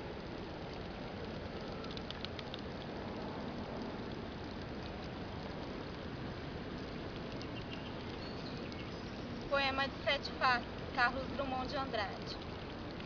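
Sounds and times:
fountain water splashing: 0.1 - 13.0
faint high ticks: 0.6 - 9.0, 11.6 - 13.0.

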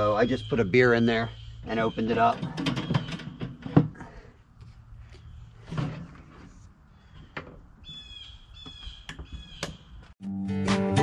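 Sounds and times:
bird calling: 0.0 - 4.2, 6.9 - 10.1
acoustic guitar music: 10.2 - 11.0.

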